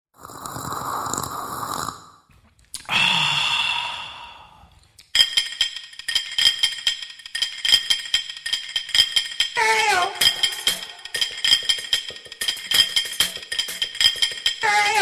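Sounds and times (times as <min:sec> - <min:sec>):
long breathy sigh: 0:02.8 - 0:04.8
jingling rattling percussion beat: 0:05.1 - 0:15.0.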